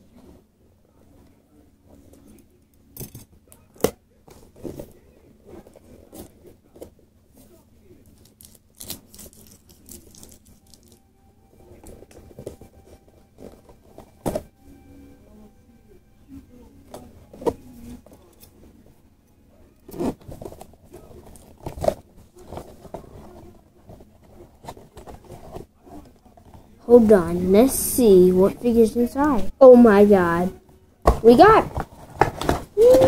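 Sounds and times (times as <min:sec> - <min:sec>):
packaging crinkling and tearing: 0:08.1 - 0:11.0.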